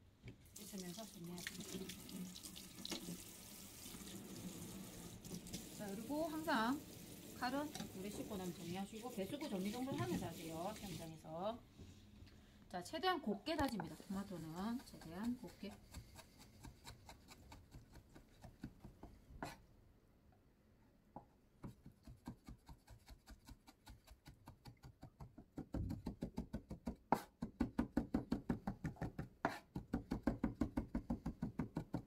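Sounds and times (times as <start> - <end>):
knife chopping on wooden board: 13.8 - 19.6, 21.6 - 32.0.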